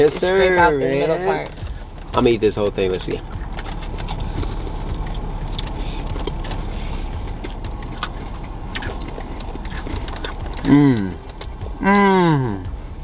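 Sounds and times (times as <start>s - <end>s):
car cabin hum: 0.0s - 13.0s
crunching cookies: 3.0s - 11.7s.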